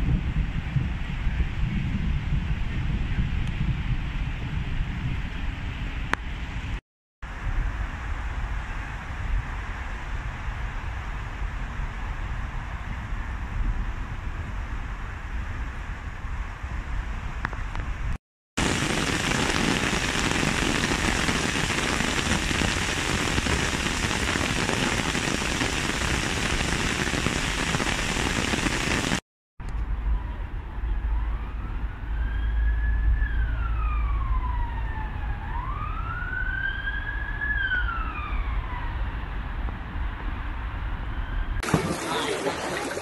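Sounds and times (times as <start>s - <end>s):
heavy rain hissing: 18.6s - 29.2s, 41.6s - 43.0s
emergency siren wailing: 30.0s - 39.6s.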